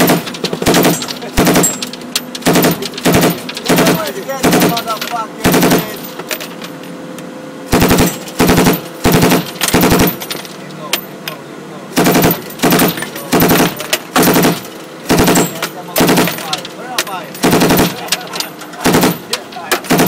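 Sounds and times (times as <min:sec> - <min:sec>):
machine gun bursts: 0:00.0 - 0:06.5, 0:07.7 - 0:10.5, 0:12.0 - 0:20.0.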